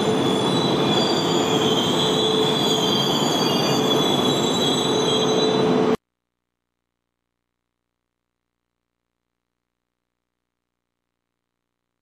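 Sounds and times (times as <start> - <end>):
brake and wheel squeal: 0.0 - 6.0
train running noise: 0.0 - 6.0.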